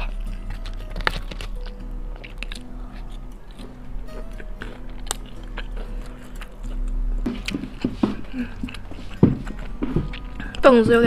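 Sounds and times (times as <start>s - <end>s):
biting and chewing crisp chicken: 0.0s - 10.7s
soft background music: 0.0s - 11.0s.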